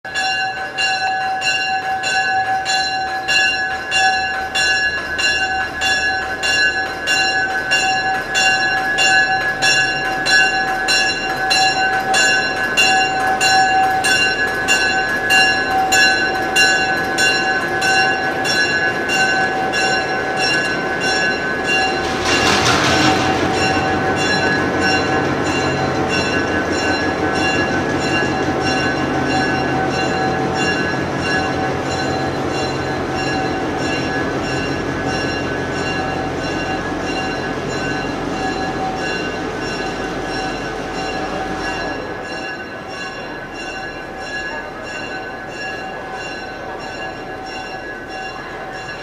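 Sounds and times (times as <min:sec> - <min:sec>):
locomotive bell ringing: 0:00.0 - 0:49.0.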